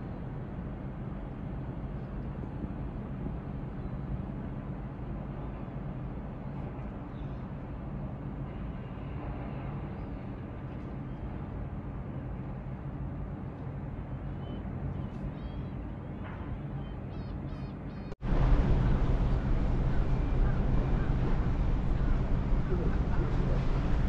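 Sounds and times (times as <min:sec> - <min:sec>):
ship machinery hum: 0:00.1 - 0:24.0
faint bird chirps: 0:14.1 - 0:18.2
wind rushing over microphone: 0:18.2 - 0:24.0.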